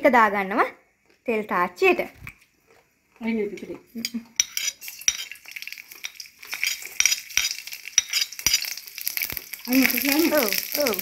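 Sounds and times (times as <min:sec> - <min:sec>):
seeds sizzling and popping in oil: 0:04.0 - 0:11.0.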